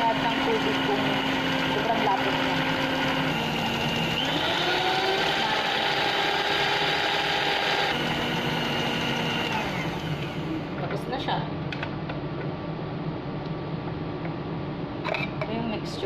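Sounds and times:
stand mixer motor whining: 0.0 - 10.7.

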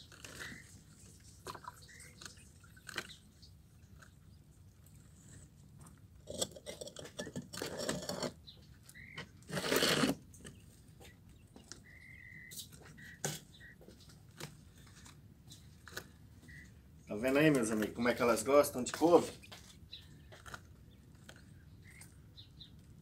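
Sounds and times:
quail pecking taps: 11.0 - 14.7
quail high calls: 11.8 - 13.9, 16.4 - 16.8.

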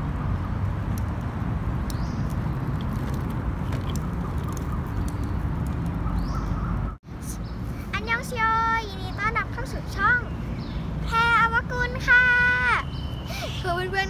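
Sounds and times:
plastic wheels rolling on asphalt: 0.6 - 6.6.

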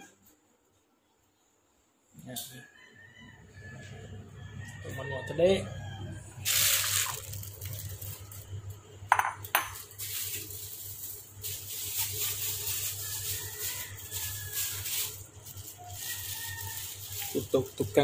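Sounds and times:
plastic bag crinkling: 6.4 - 8.6, 9.8 - 18.0
dishware clinks: 9.1 - 9.8.

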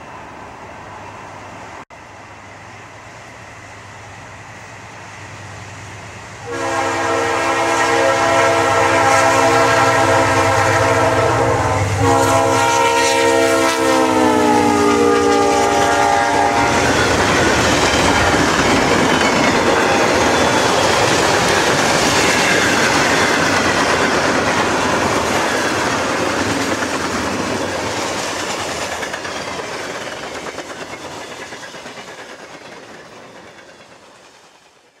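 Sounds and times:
passing train clatter: 0.0 - 35.0
locomotive air horn: 6.4 - 17.0.

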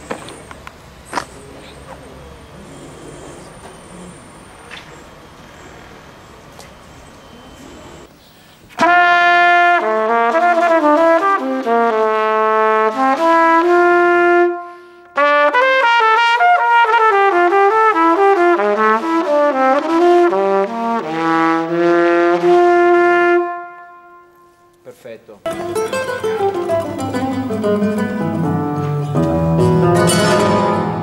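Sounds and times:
trumpet melody: 8.7 - 24.8, 25.5 - 31.0.

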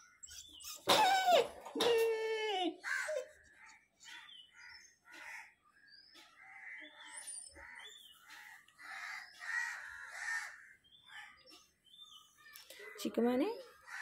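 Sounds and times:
puppy whining: 0.2 - 3.4.

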